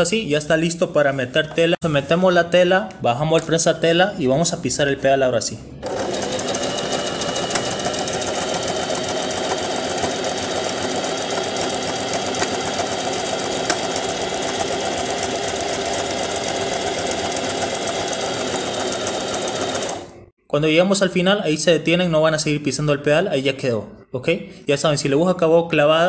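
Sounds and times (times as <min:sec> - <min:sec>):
sewing machine stitching: 0:05.8 - 0:20.2.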